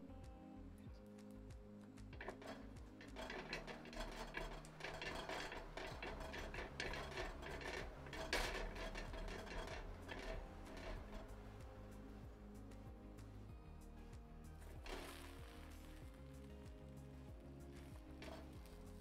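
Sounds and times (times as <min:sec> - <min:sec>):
pastry brush scraping metal pan: 0:02.2 - 0:12.1, 0:17.6 - 0:19.0.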